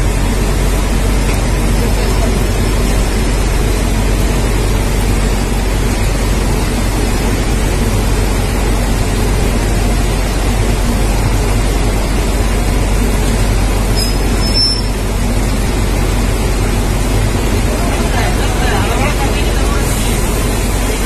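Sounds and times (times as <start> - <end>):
heavy rain pouring: 0.0 - 21.0
train rolling slowly: 0.0 - 21.0.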